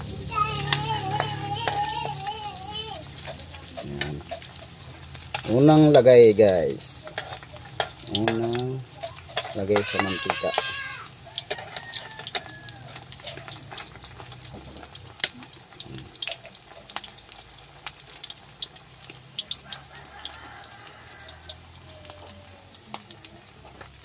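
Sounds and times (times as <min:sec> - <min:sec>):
fish frying in hot oil: 0:00.0 - 0:24.0.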